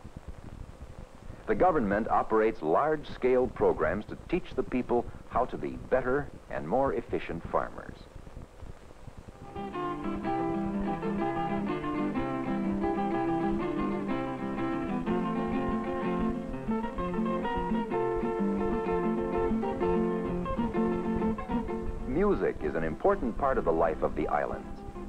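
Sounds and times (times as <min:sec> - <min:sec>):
plucked string melody: 0:09.4 - 0:25.0
strummed guitars: 0:09.4 - 0:25.0.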